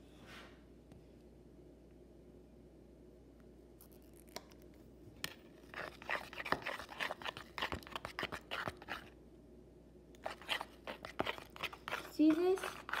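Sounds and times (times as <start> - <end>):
plastic spoon stirring slime: 3.8 - 9.2, 10.1 - 13.0.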